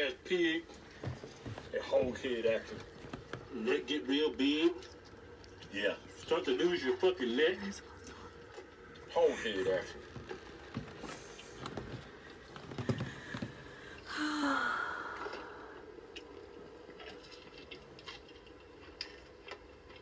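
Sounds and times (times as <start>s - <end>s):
faint steady hum: 0.0s - 20.0s
breathy hiss: 12.7s - 16.1s.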